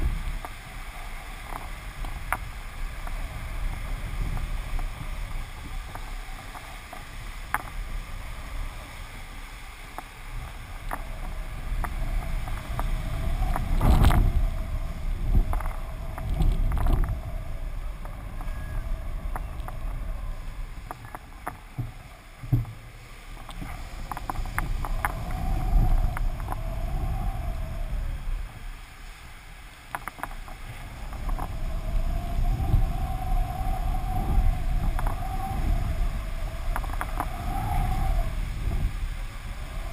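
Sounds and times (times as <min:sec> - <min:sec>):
faint wavering hum: 0:00.0 - 0:39.9
wind buffeting camera: 0:00.0 - 0:39.9
sharp ticks: 0:29.9 - 0:31.5.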